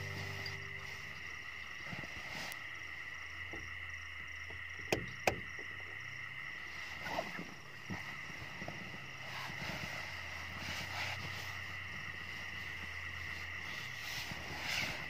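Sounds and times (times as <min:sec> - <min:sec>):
high-pitched drone: 0:00.0 - 0:01.4
bedding rustling: 0:00.0 - 0:02.6, 0:06.7 - 0:15.0.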